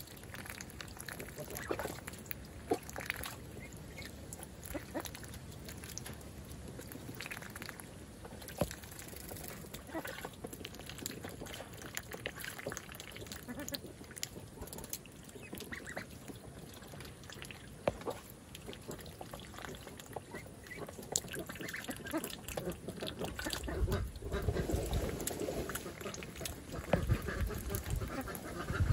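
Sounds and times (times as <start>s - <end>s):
water splashing: 0.0s - 28.9s
young ducks quacking: 1.3s - 5.3s, 9.8s - 10.4s, 13.2s - 18.2s, 18.8s - 28.9s
wind on microphone: 23.6s - 25.3s, 26.8s - 28.9s.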